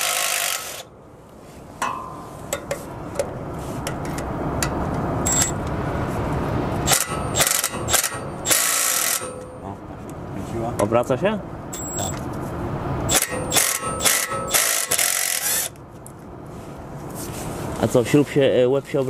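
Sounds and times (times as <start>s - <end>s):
cordless ratchet running: 6.9s - 9.3s, 13.1s - 15.7s.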